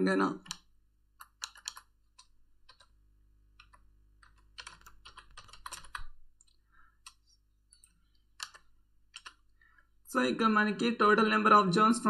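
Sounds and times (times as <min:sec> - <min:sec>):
computer keyboard typing: 0:00.4 - 0:09.9.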